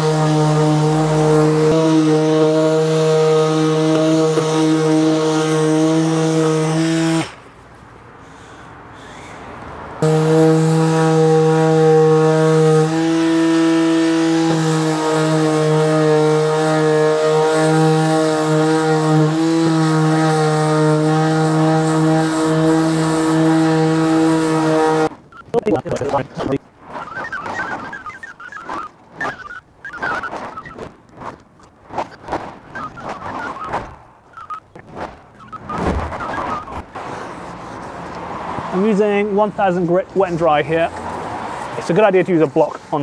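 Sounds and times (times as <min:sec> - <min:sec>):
electric sander motor hum: 0:00.0 - 0:07.3, 0:10.0 - 0:25.1.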